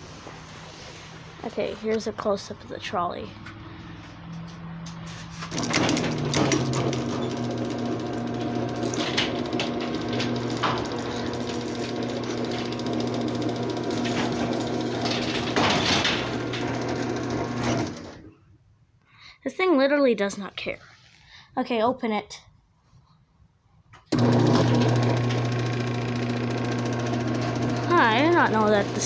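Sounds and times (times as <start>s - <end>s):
garage door opener motor hum: 4.9s - 18.3s, 24.1s - 29.0s.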